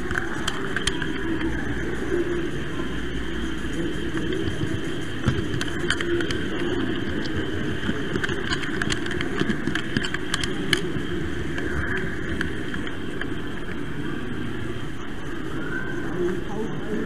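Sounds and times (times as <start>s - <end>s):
sharp clicks over rails: 4.1s - 13.8s.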